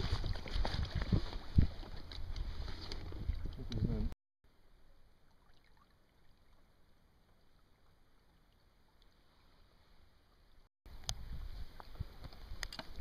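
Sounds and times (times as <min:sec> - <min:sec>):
paddling in water: 0:00.0 - 0:04.1, 0:04.8 - 0:13.0
faint water lapping: 0:00.0 - 0:04.2.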